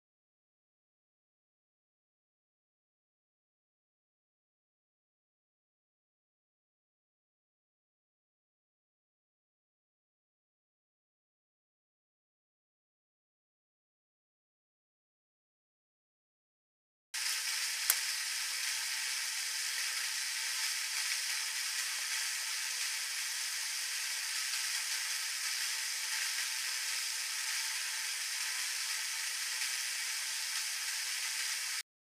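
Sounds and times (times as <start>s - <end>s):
steady hiss: 17.2s - 31.8s.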